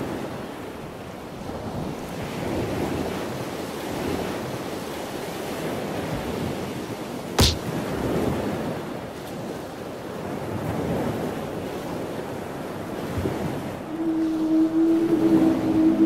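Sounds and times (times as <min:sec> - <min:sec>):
low horn-like tone: 0:13.4 - 0:16.0.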